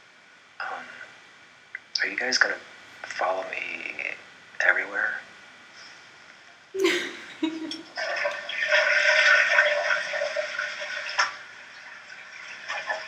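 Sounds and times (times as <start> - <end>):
toilet flushing: 7.8 - 13.0.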